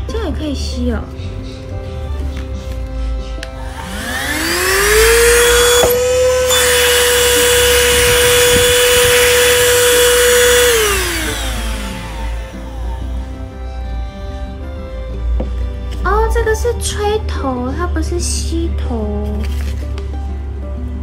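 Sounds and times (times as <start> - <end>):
mini vacuum motor whine: 3.5 - 14.2.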